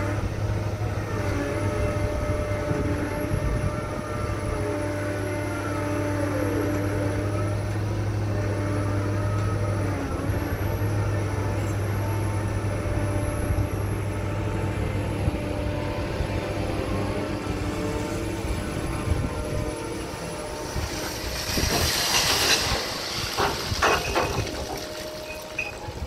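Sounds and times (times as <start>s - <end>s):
crane diesel engine running: 0.0s - 26.0s
metallic clanks of bucket chains: 23.8s - 25.8s.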